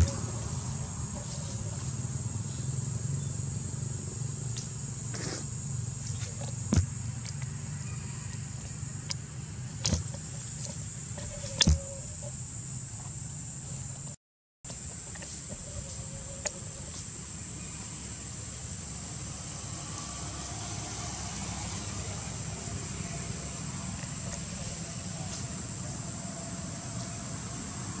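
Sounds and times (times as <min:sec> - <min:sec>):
high-pitched insect drone: 0:00.0 - 0:09.0.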